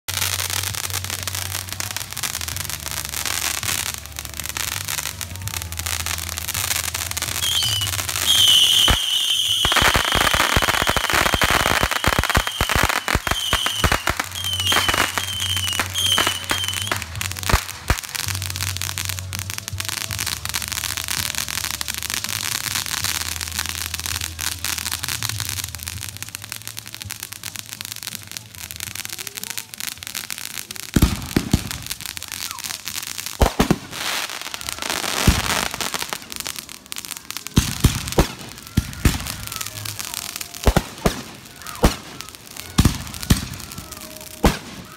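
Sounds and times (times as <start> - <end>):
firework bangs and crackling: 0.1 - 44.9
firework whistles: 5.7 - 18.5.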